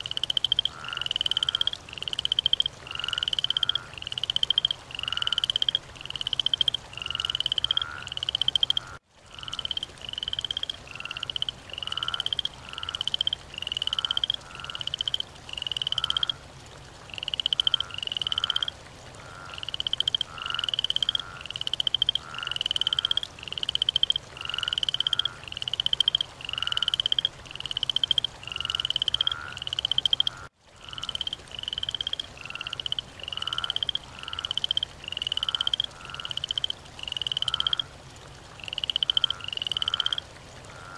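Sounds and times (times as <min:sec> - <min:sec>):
frog croaking: 0:00.0 - 0:37.9, 0:38.6 - 0:40.9.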